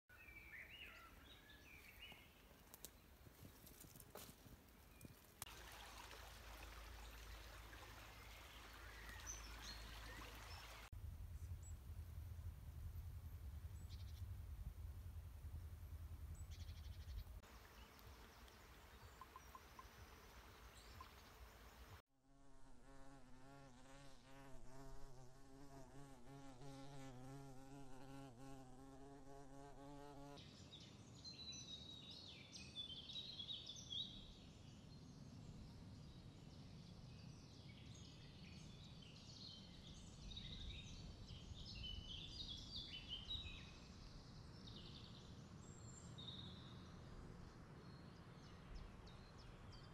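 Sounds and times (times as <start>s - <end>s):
flying insect buzzing: 22.3s - 30.4s.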